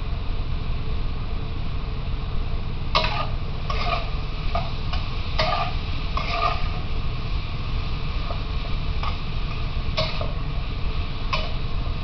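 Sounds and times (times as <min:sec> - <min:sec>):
steady low hum: 0:00.0 - 0:12.0
metal spatula clanking on wok: 0:03.0 - 0:06.8, 0:09.0 - 0:10.4, 0:11.3 - 0:11.7.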